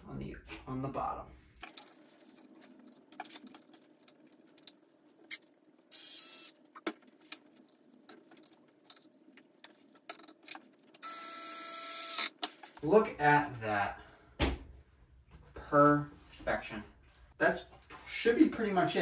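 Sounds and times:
cordless drill spinning: 0:05.9 - 0:06.6, 0:11.0 - 0:12.4.

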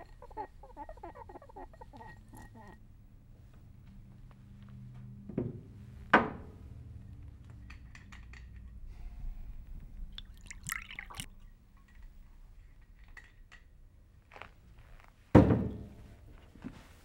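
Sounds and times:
liquor pouring into glass: 0:10.1 - 0:11.3.

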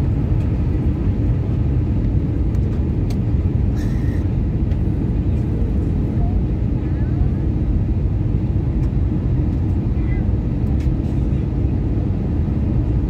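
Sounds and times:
airplane cabin rumble: 0:00.0 - 0:13.0.

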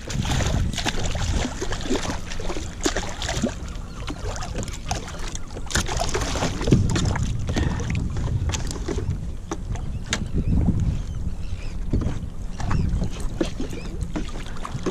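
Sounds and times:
sharp splashes and knocks: 0:00.0 - 0:10.3, 0:11.9 - 0:14.9
wind rumble on microphone: 0:00.0 - 0:14.9
fish splashing at water surface: 0:00.1 - 0:07.7.

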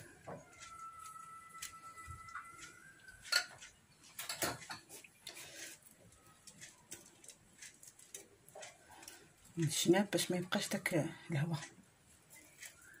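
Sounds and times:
cling film and foil crinkling: 0:00.0 - 0:10.9, 0:12.1 - 0:13.0
whistle-like tone: 0:12.4 - 0:13.0.

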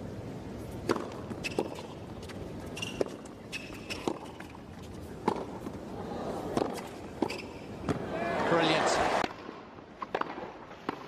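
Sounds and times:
racket striking tennis ball: 0:00.8 - 0:04.6, 0:05.2 - 0:05.8, 0:06.4 - 0:08.1
sneaker squeaks on court: 0:01.4 - 0:02.0, 0:02.7 - 0:04.5, 0:07.2 - 0:07.7.

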